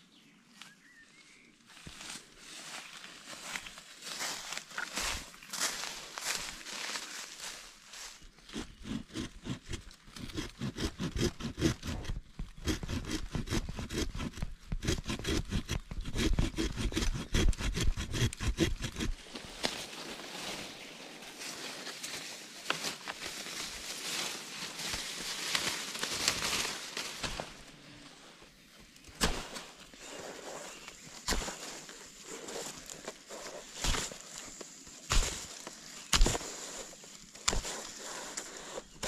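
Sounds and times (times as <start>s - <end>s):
leaves and twigs rustling: 0.5s - 13.2s, 18.8s - 39.0s
small saw cutting a branch: 8.4s - 19.8s, 24.6s - 27.8s, 29.0s - 39.0s.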